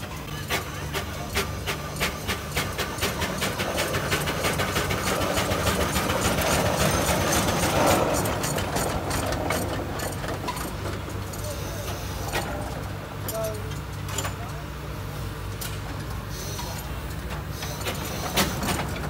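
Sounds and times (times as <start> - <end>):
steam engine exhaust chuffing: 0.0 - 13.1
steam hissing: 0.0 - 13.2, 16.2 - 19.0.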